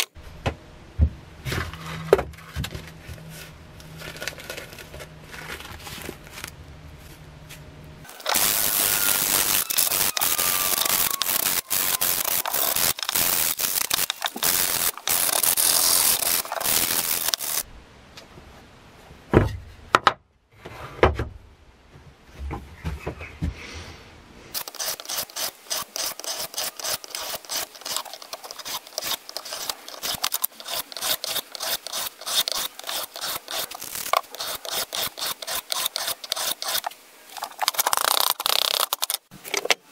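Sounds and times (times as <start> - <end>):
sandpaper rasping on steel blade: 8.2 - 17.6, 24.6 - 36.9
blade stroking on whetstone: 24.6 - 36.9.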